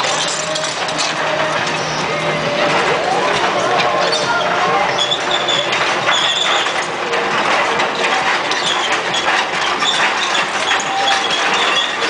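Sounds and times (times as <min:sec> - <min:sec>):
diesel engine running: 0:00.0 - 0:12.0
metallic knocks and clicks: 0:00.0 - 0:12.0.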